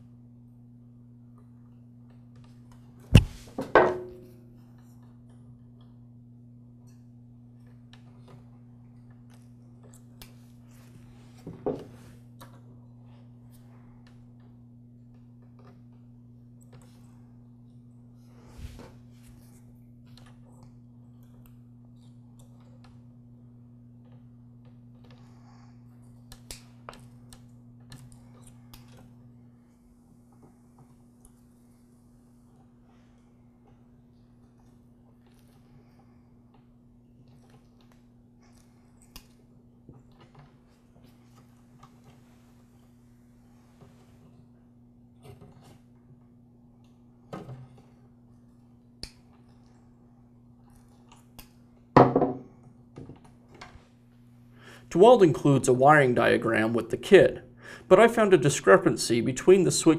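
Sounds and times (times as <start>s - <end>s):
low hum: 0.0s - 45.2s
knock: 3.2s - 4.2s, 52.0s - 52.4s.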